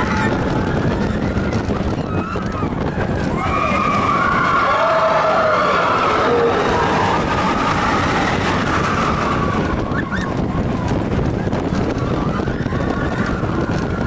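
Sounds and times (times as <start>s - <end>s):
riders screaming: 0.0s - 10.8s
roller coaster wheels and wind rushing: 0.0s - 14.0s.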